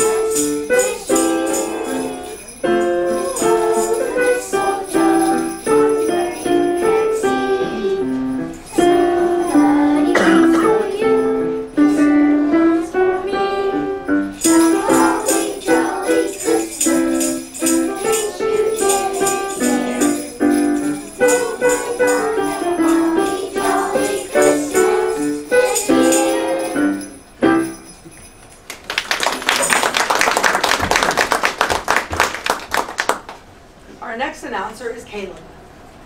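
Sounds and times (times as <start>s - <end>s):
christmas song with jingling: 0.0s - 28.7s
audience applauding: 28.7s - 33.4s.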